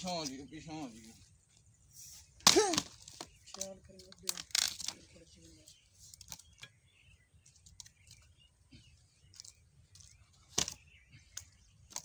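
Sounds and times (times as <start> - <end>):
axe splitting wood: 2.4 - 2.9.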